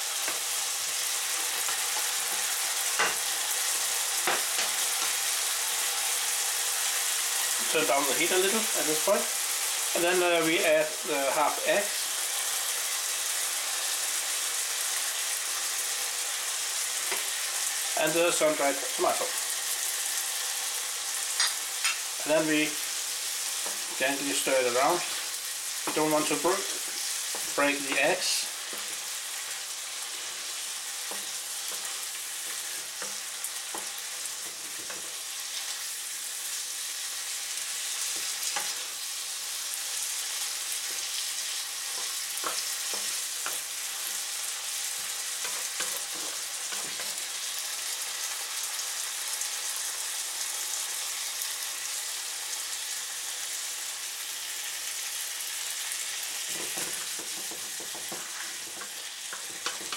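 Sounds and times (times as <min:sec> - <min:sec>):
stir-fry sizzling in a frying pan: 0:00.0 - 0:59.9
wooden spatula scraping and tapping: 0:26.8 - 0:29.1, 0:30.0 - 0:35.2, 0:41.9 - 0:43.6, 0:45.0 - 0:47.2, 0:56.4 - 0:59.9.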